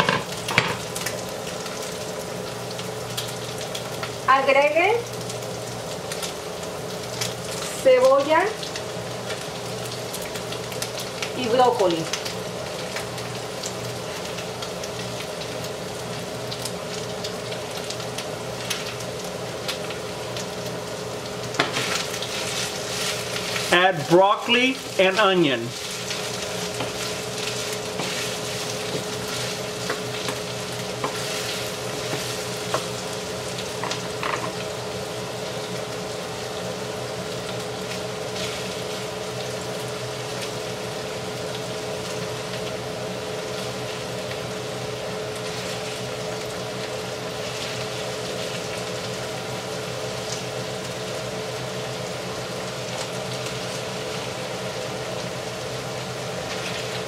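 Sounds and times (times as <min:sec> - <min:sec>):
steady hum: 0:00.0 - 0:52.5
meat and onion sizzling in pan: 0:00.0 - 0:57.0
wooden spatula scraping pan: 0:25.9 - 0:30.0.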